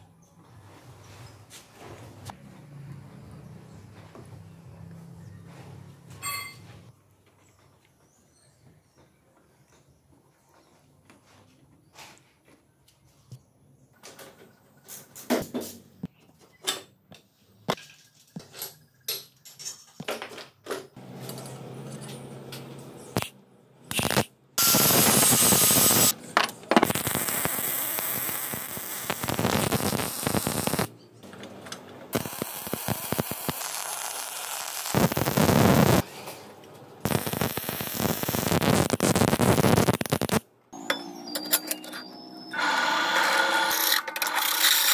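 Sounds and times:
arc welding crackling hiss: 23.9s - 26.2s, 26.8s - 30.9s, 32.1s - 36.0s, 37.1s - 40.4s.

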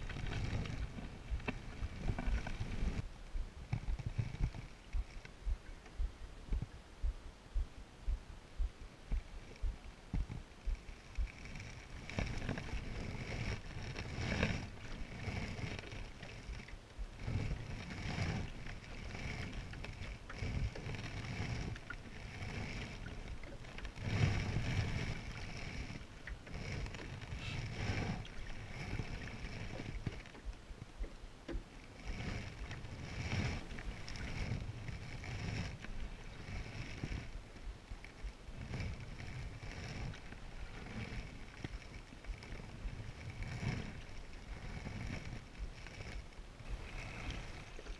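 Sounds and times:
water moving along hull: 0.0s - 47.9s
paddle splashing in water: 10.8s - 47.9s.

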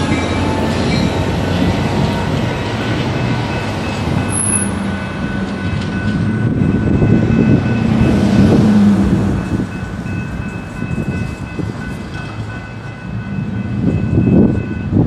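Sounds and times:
vehicles passing with low rumble: 0.0s - 15.0s.

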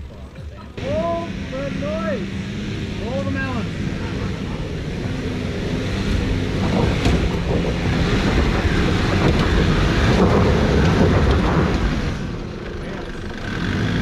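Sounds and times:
tyres churning in loose dirt: 0.0s - 14.0s
engine working hard under load: 0.1s - 14.0s.

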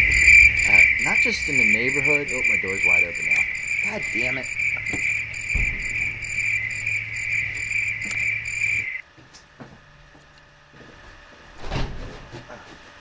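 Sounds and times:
crickets chirping: 0.0s - 9.0s.

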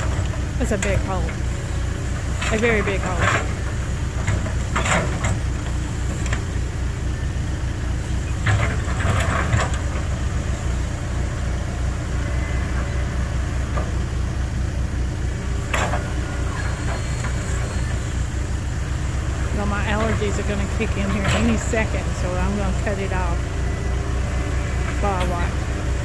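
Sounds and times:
heavy engine rumbling: 0.0s - 26.0s.

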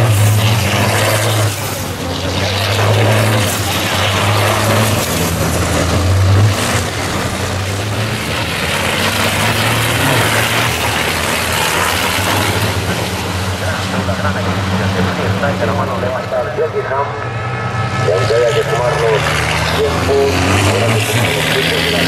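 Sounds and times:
truck diesel engines running: 0.0s - 22.0s.

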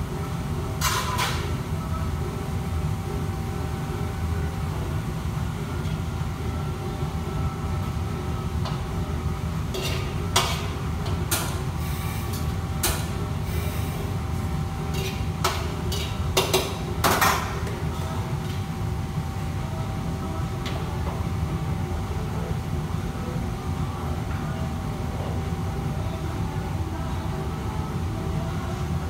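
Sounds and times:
metal cookware clattering: 15.0s - 17.4s.

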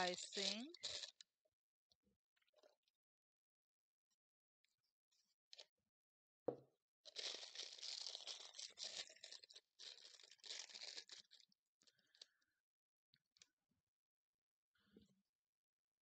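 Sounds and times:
plastic piping bag crinkling: 0.0s - 1.2s, 7.1s - 12.4s.

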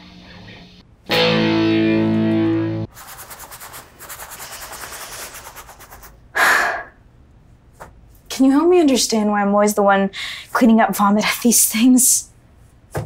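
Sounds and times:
distorted electric guitar chord: 0.0s - 2.9s.

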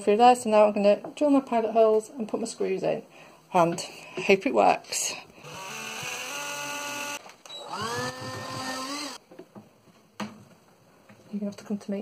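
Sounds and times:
cordless drill whining: 5.4s - 9.2s.

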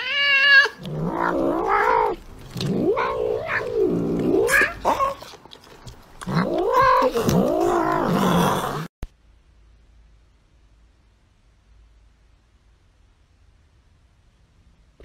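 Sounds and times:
cat yowling: 0.0s - 5.4s, 6.2s - 8.9s.

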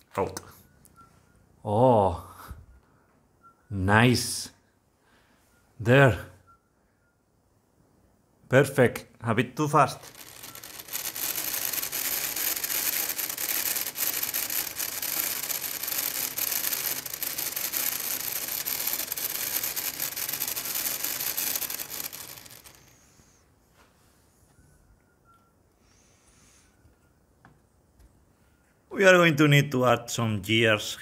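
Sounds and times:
small motor whirring gears: 9.9s - 23.4s.

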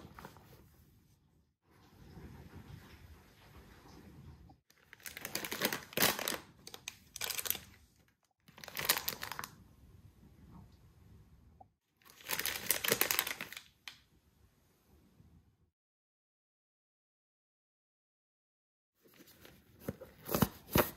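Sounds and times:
plastic packets crinkling: 4.8s - 7.8s, 8.5s - 9.6s, 12.0s - 13.8s.

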